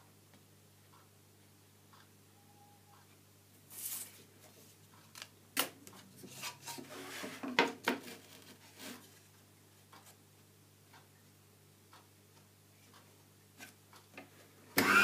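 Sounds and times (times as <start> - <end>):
wooden board scraping: 6.2 - 9.1.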